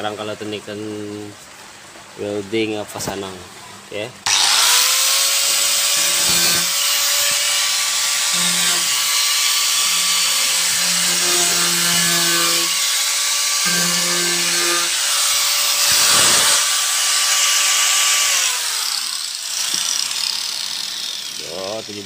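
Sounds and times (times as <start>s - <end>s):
grinder motor winding down: 4.3s - 5.2s, 15.7s - 22.0s
angle grinder grinding steel: 4.3s - 22.0s.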